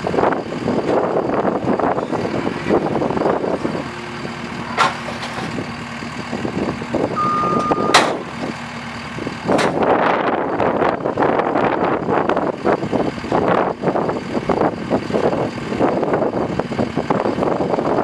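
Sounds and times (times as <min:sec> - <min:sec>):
diesel engine running: 0:00.0 - 0:18.0
short high beep: 0:07.2 - 0:08.2.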